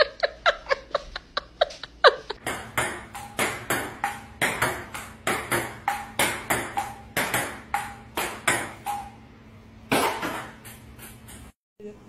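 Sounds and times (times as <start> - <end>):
table tennis ball bouncing: 2.4 - 9.2, 9.9 - 11.5
table tennis rally hits: 2.4 - 9.2, 9.9 - 11.5.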